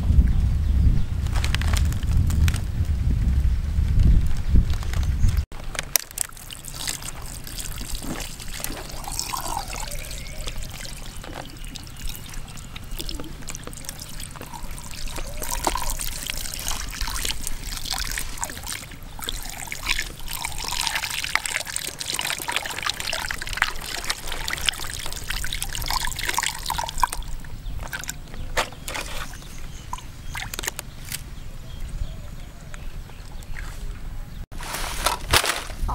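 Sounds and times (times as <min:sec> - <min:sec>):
water trickling and pouring: 0:06.2 - 0:28.2.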